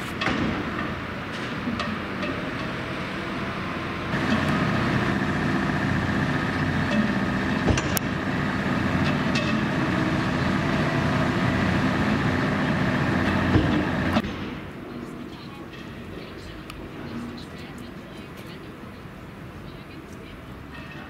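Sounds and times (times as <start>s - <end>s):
large engine running: 0.0s - 14.2s
steady high whine: 0.0s - 15.6s.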